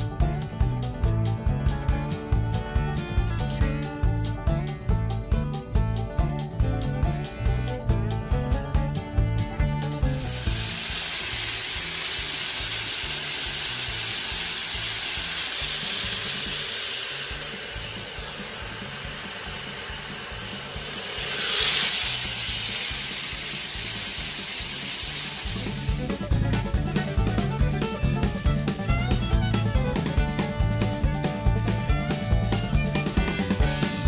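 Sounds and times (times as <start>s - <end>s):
bluegrass music: 0.0s - 34.0s
grain pouring into plastic barrel: 10.1s - 26.2s.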